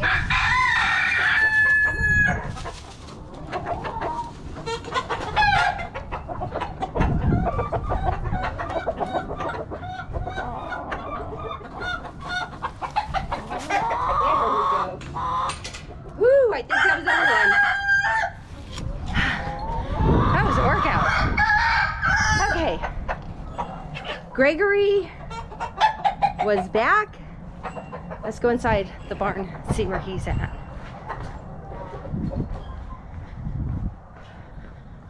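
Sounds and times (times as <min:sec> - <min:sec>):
rooster crowing: 0:00.0 - 0:02.4, 0:16.7 - 0:18.4
hens clucking: 0:00.0 - 0:33.5.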